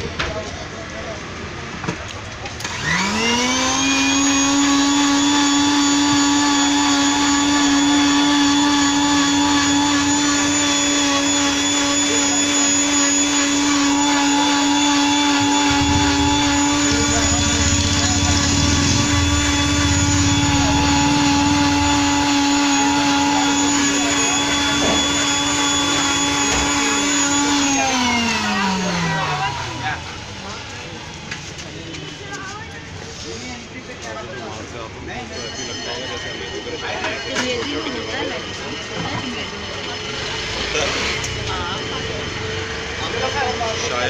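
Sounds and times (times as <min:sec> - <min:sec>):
blender motor running: 0:02.6 - 0:31.6, 0:38.2 - 0:44.0
rough low rumble: 0:15.3 - 0:24.3.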